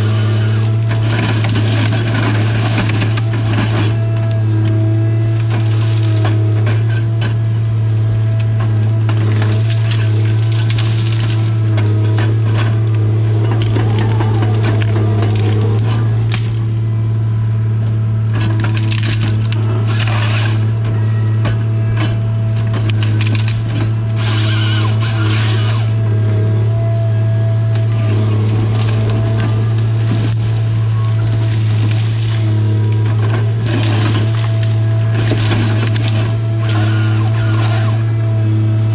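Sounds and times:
wood cracking and splintering: 0.0 - 17.4, 18.2 - 38.9
diesel engine droning: 0.0 - 38.9
saw cutting through wood: 18.5 - 20.7, 22.7 - 26.4, 27.8 - 38.9.

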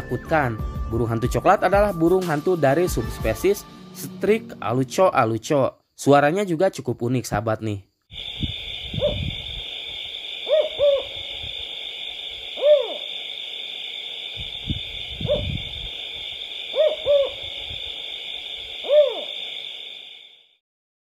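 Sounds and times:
steady high hiss: 7.6 - 20.5
owl hooting: 8.1 - 20.5.

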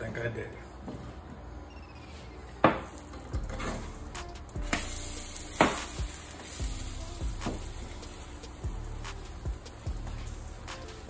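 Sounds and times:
eggs sizzling in a frying pan: 2.9 - 11.0.

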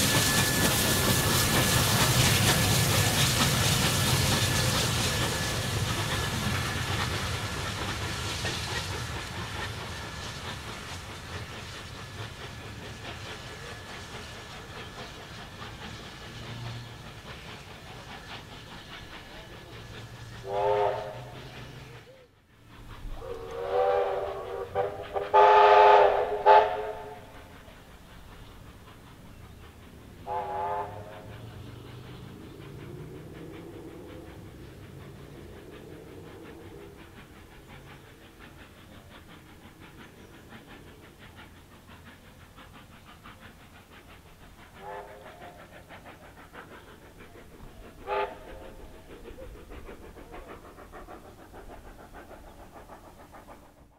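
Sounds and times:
steady train noise: 0.0 - 53.9
steam locomotive whistle blasts: 20.4 - 21.8, 23.2 - 27.4, 30.2 - 31.3, 44.8 - 45.4, 48.0 - 48.6.

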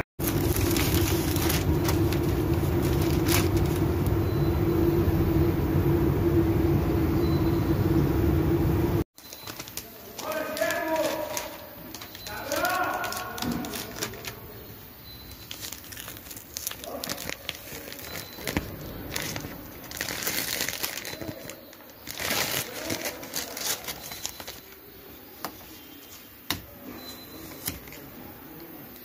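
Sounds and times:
masking paper crinkling: 0.2 - 4.8, 9.2 - 26.5.

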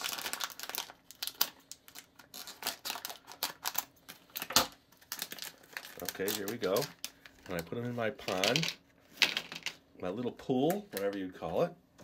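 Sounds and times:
foil pouch crinkling: 0.0 - 8.7.

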